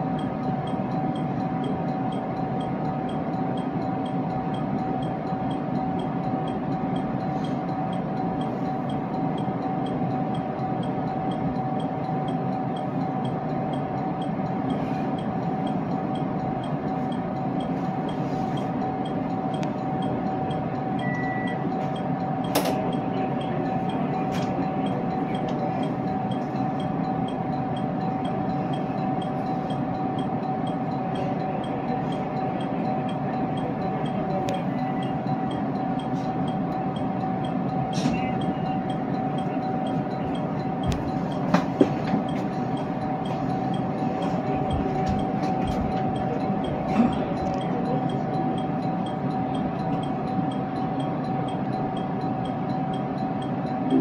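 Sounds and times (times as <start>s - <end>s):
electric train running hum: 0.0s - 54.0s.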